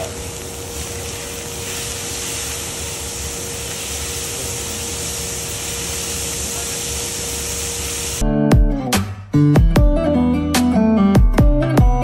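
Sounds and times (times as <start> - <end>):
machine hum: 0.0 - 8.3
cooking drum sizzling: 0.0 - 8.8.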